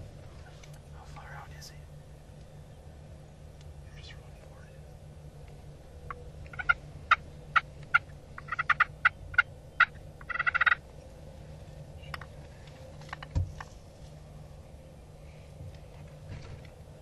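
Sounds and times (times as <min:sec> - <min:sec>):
turkey calls: 0:06.0 - 0:10.9
turkey rattling gobble: 0:06.1 - 0:10.8.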